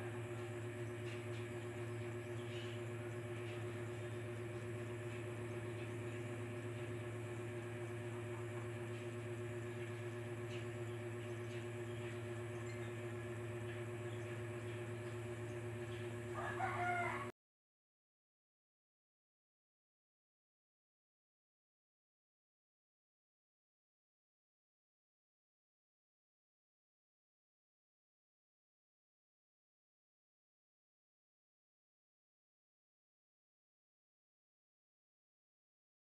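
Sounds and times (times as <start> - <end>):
steady low hum: 0.0 - 17.3.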